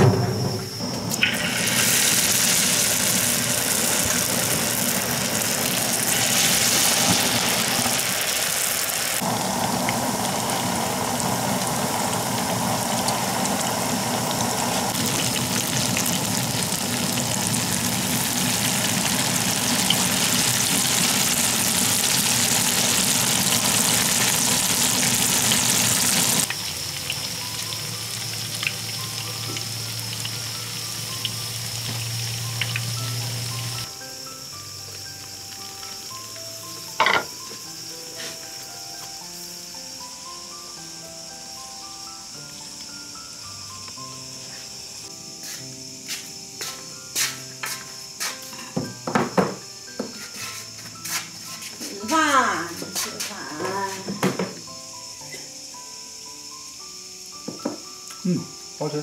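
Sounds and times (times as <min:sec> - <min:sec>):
oil sizzling in a wok: 0:00.0 - 0:59.0.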